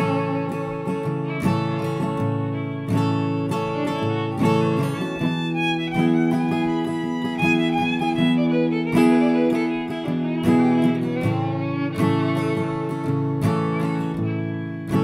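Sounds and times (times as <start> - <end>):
plucked string instrument improvisation: 0.0 - 15.0.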